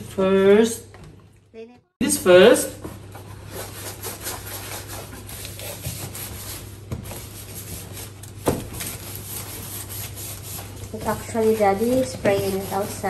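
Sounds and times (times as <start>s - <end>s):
wipe scrubbing cardboard: 3.3s - 13.0s.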